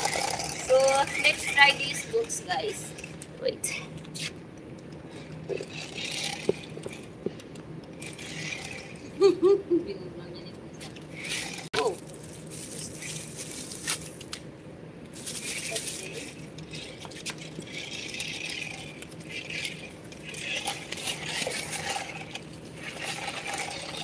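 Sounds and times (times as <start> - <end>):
toy car rattling whir: 0.0 - 3.3, 5.2 - 7.1, 8.0 - 9.1, 11.0 - 12.0, 15.2 - 24.0.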